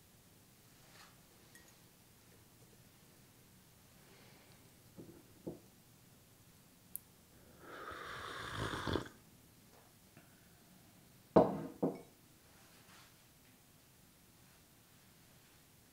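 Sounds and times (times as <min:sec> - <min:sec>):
slurping sip of coffee: 0:07.4 - 0:09.2
glass mug knocking on wood: 0:11.4 - 0:12.1.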